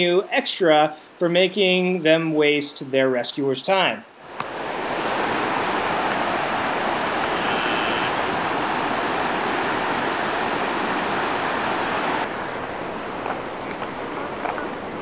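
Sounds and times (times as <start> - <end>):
flood water rushing: 4.5 - 15.0.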